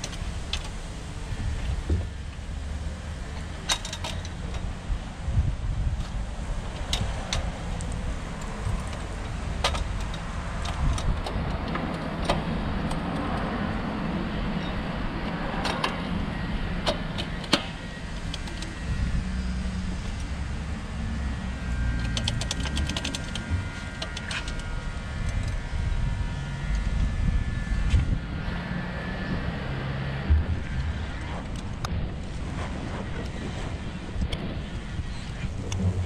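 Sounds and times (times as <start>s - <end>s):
steady low rumble: 0.0s - 36.0s
clicks and light metal knocks: 3.3s - 4.7s, 6.0s - 13.5s.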